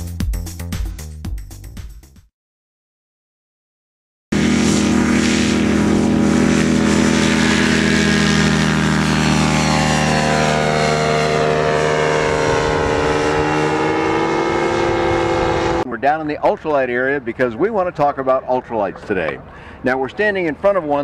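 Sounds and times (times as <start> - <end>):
ultralight aircraft engine drone: 4.3 - 21.0.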